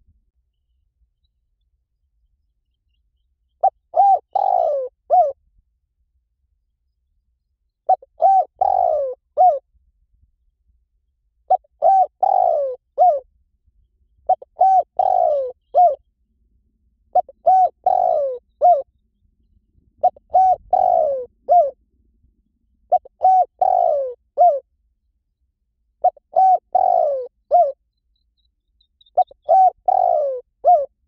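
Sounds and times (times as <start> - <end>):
dove cooing: 3.6 - 5.4, 7.9 - 9.6, 11.5 - 13.2, 14.3 - 16.0, 17.1 - 18.9, 20.0 - 21.8, 22.9 - 24.7, 26.0 - 27.8, 29.0 - 31.0.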